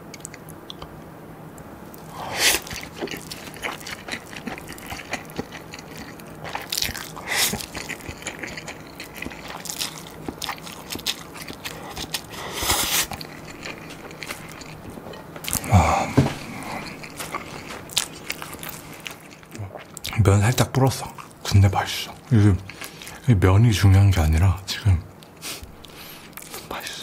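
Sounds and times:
wet chewing and mouth clicks: 0:00.0 - 0:01.0, 0:01.9 - 0:23.2
slurping noodles: 0:02.1 - 0:06.2, 0:11.8 - 0:14.4.

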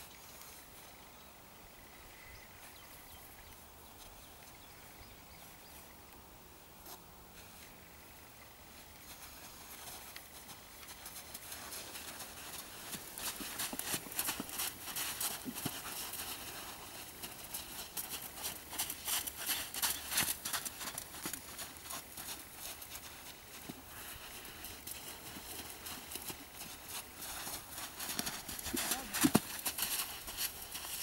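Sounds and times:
horse hoofbeats on sand: 0:09.0 - 0:31.0.

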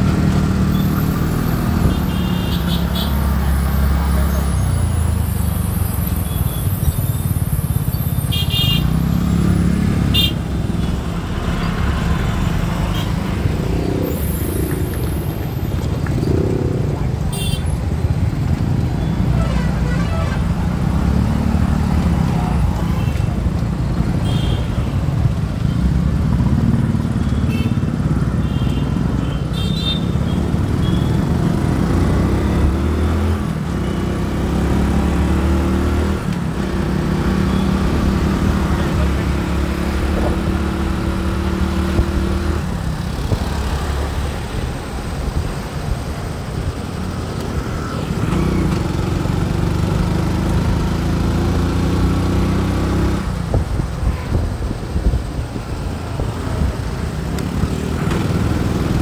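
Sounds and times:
road traffic rumble: 0:00.0 - 0:59.0.

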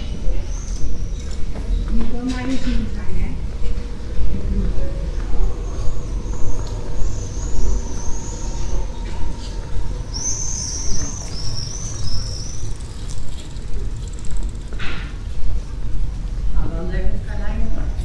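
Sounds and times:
steady low town rumble: 0:00.0 - 0:18.0
songbird chirping: 0:04.6 - 0:14.7.

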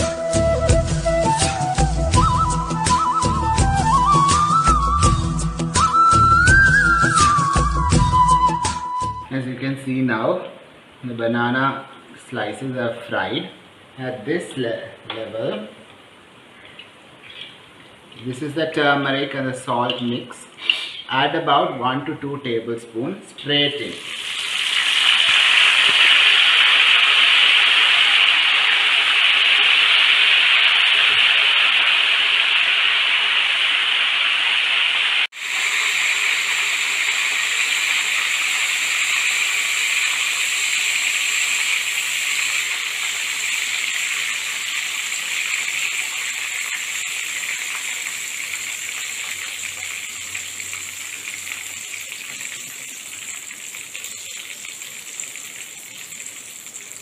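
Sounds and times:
oil spluttering and hissing: 0:23.9 - 0:57.0.

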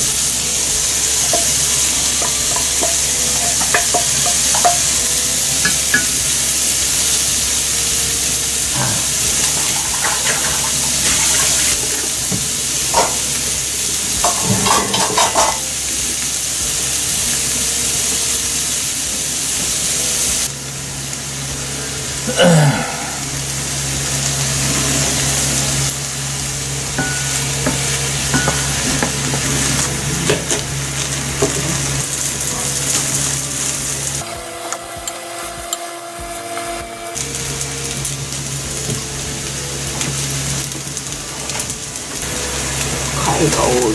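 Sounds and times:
food sizzling in frying pan: 0:00.0 - 0:43.9
spatula scraping and knocking pan: 0:01.2 - 0:06.3, 0:09.1 - 0:13.3.

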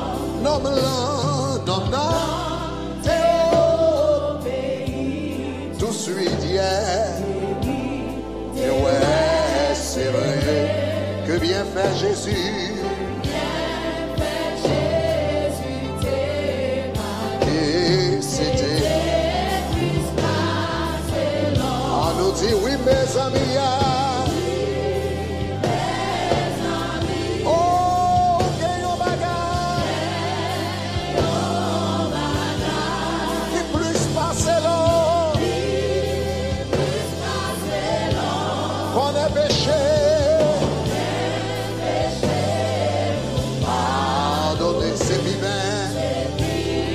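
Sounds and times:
bass guitar: 0:00.0 - 0:46.9
voices singing together: 0:00.0 - 0:46.9.

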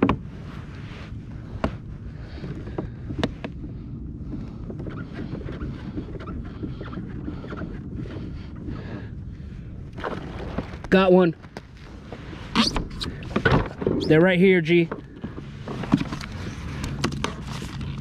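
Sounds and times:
water lapping at kayak hull: 0:00.0 - 0:18.0
wind buffeting microphone: 0:00.0 - 0:18.0.

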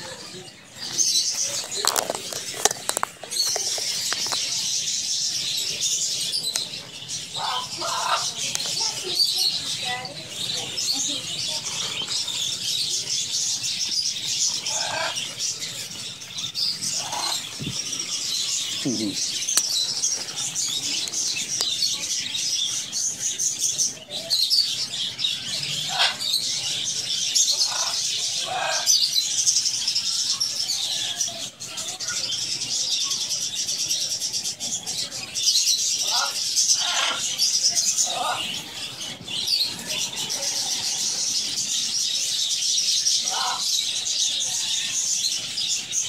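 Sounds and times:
budgerigars chattering: 0:00.0 - 0:46.0
low bird calls: 0:05.8 - 0:24.6.

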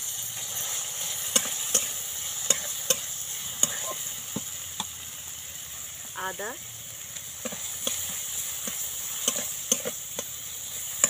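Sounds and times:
vegetables sizzling in hot oil: 0:00.0 - 0:11.0
metal spatula scraping pan: 0:07.4 - 0:11.0.

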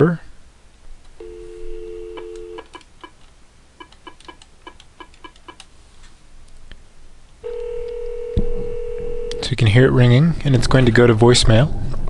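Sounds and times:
telephone keypad beeps: 0:01.2 - 0:02.7
telephone ringback tone: 0:01.2 - 0:02.7, 0:07.4 - 0:09.6
telephone dial tone: 0:01.2 - 0:02.8, 0:07.4 - 0:09.5.

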